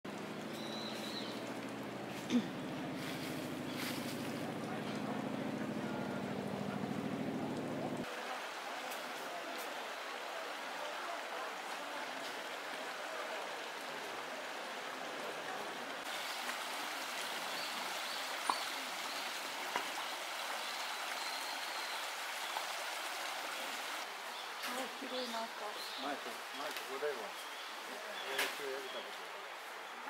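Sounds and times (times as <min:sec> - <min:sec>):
stream rushing over rocks: 0:08.0 - 0:27.0.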